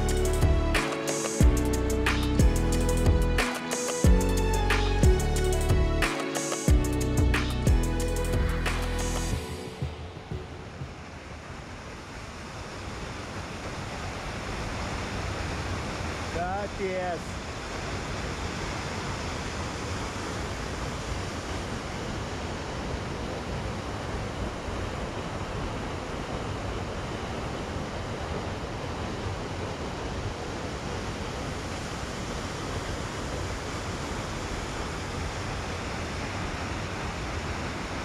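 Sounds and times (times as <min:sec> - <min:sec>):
waterfall rushing: 0:00.0 - 0:05.1.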